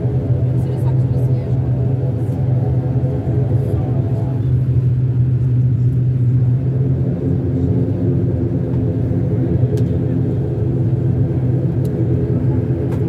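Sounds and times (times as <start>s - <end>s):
turboprop engines droning: 0.0s - 13.0s.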